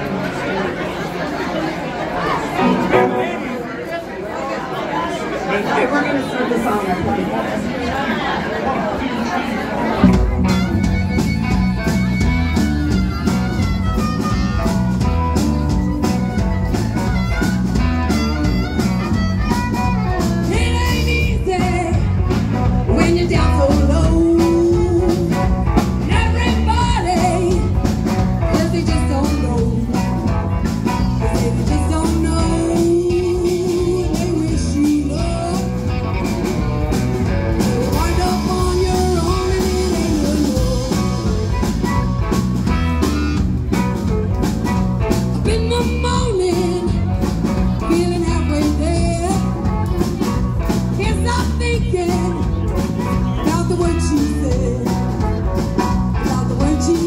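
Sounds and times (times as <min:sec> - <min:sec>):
drums: 0:00.0 - 0:03.4, 0:09.8 - 0:57.0
bass guitar: 0:02.5 - 0:03.6, 0:10.0 - 0:57.0
electric guitar: 0:02.6 - 0:03.6, 0:10.0 - 0:57.0
harmonica: 0:10.1 - 0:20.8
woman singing: 0:20.4 - 0:22.2, 0:22.9 - 0:27.8, 0:28.4 - 0:30.2, 0:31.2 - 0:36.0, 0:37.6 - 0:42.0, 0:45.3 - 0:55.5, 0:56.2 - 0:57.0.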